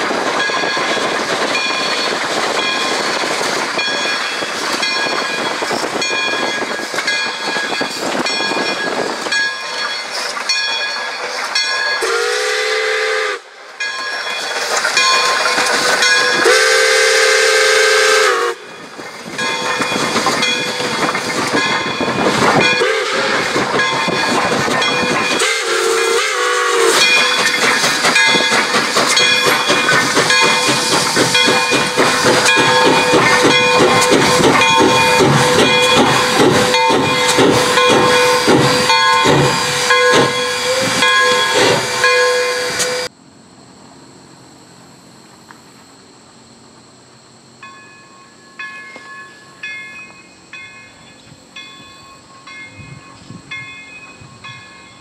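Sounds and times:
hissing steam: 0.0s - 43.1s
locomotive exhaust beats: 0.0s - 43.1s
distant train approaching: 0.0s - 55.0s
steam locomotive whistle: 12.0s - 13.6s, 16.1s - 18.8s, 22.6s - 27.6s, 30.2s - 43.1s.

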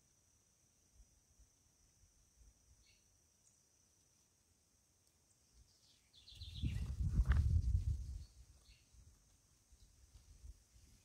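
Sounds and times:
faint high chirp: 2.7s - 4.3s, 5.2s - 7.0s.

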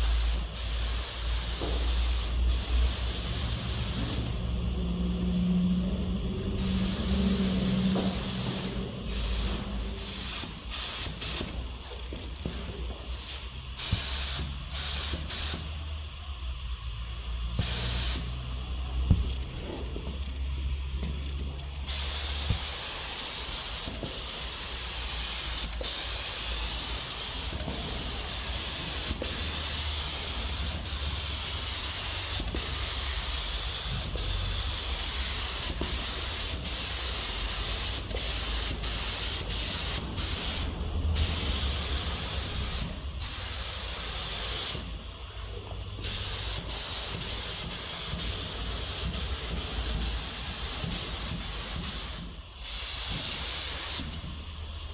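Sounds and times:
spray gun hissing: 0.0s - 4.5s, 6.5s - 15.8s, 17.6s - 18.4s, 21.8s - 45.0s, 46.0s - 54.3s.

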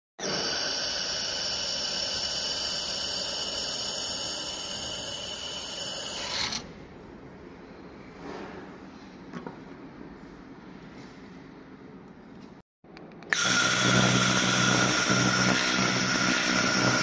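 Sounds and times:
laser welder hissing and whining: 0.2s - 6.6s, 13.4s - 17.0s.

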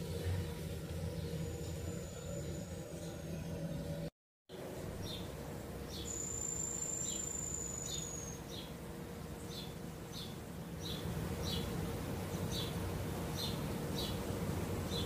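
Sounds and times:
insects chirping: 5.9s - 8.8s.

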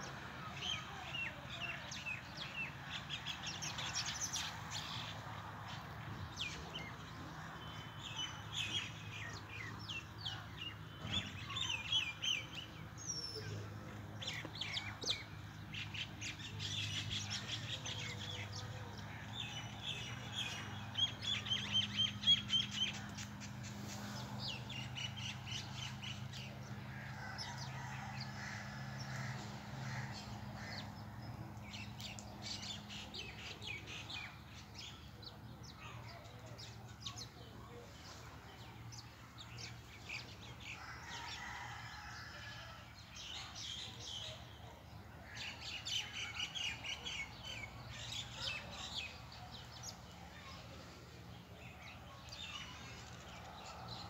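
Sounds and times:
small birds chirping: 0.0s - 41.7s.

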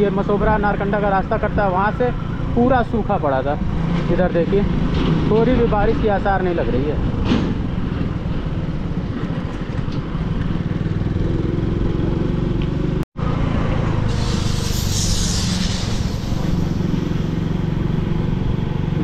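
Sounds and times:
hiss: 14.0s - 17.7s.

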